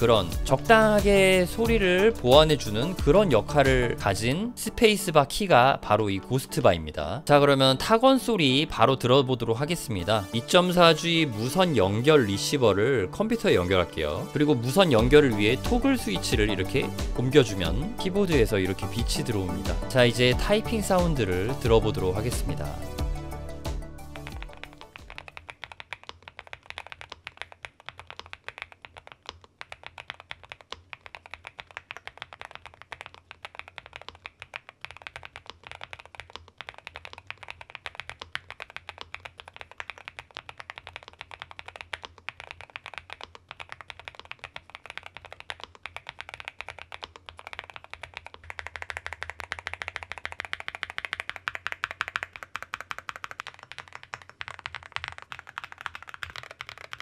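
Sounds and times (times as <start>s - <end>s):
mechanical keyboard typing: 13.2s - 22.9s, 24.1s - 57.0s.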